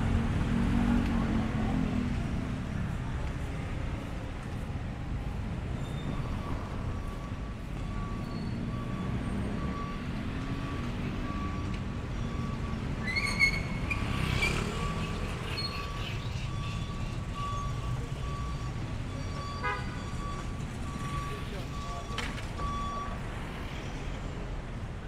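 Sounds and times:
street traffic rumbling: 0.0 - 25.0
short high squeal: 13.0 - 16.2.

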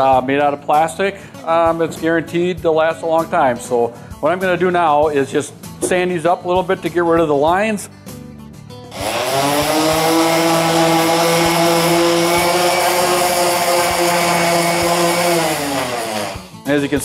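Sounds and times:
orbital sander humming and whining: 8.9 - 16.6.

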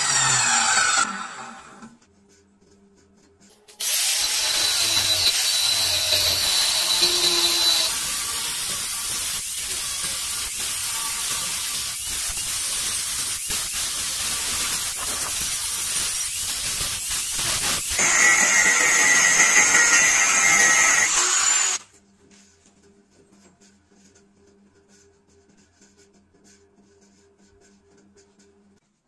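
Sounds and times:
angle grinder cutting steel: 0.0 - 2.0, 3.8 - 21.8.

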